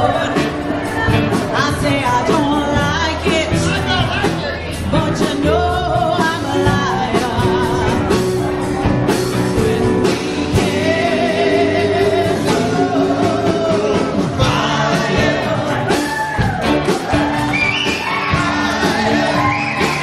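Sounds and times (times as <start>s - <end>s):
woman singing with vibrato: 0.0s - 4.0s, 4.8s - 8.2s, 9.5s - 16.1s
live rock band playing: 0.0s - 20.0s.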